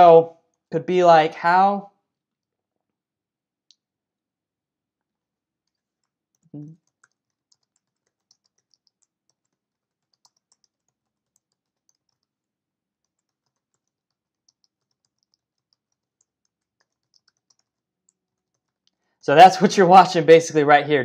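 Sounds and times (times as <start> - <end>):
faint keyboard typing: 5.0 - 20.5.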